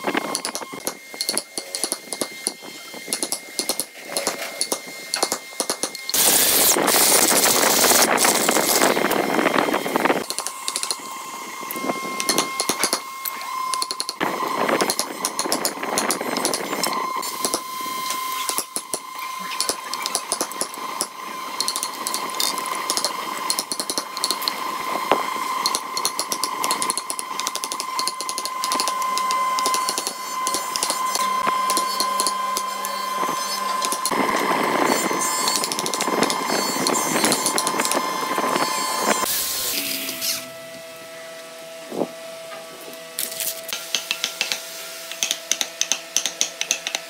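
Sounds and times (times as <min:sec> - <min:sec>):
electric drill boring into wood: 0:00.0 - 0:42.1
wooden mallet striking chisel: 0:43.9 - 0:47.0.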